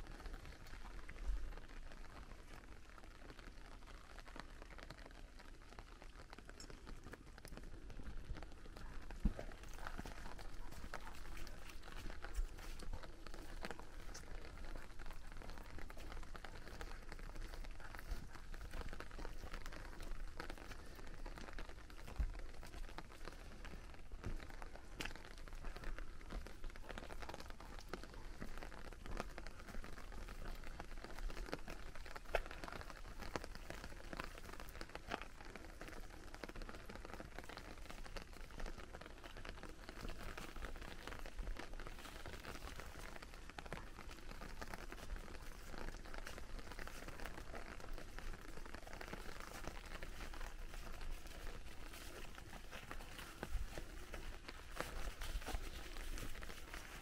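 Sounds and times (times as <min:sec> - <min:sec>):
rain pattering on umbrella: 0:00.0 - 0:57.0.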